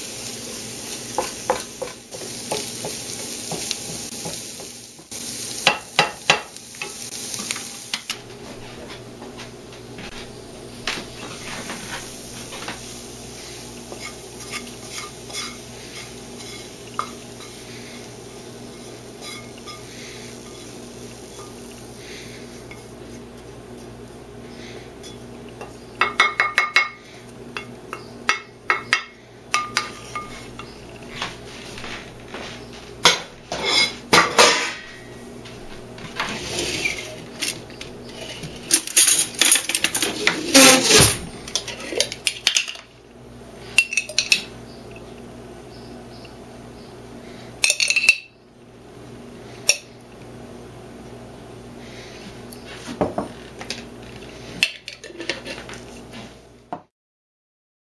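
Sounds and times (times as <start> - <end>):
steady low hum: 6.6 - 52.9
spatula scraping frying pan: 11.1 - 23.5, 29.6 - 30.8, 33.5 - 34.7, 36.0 - 42.1, 54.3 - 56.4.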